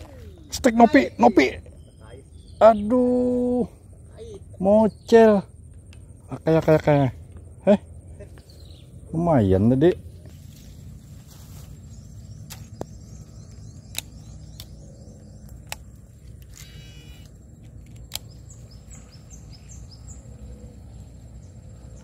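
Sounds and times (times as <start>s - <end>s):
high falling wildlife chirps: 0.0s - 22.0s
sharp clicks: 13.5s - 14.8s, 15.4s - 18.7s.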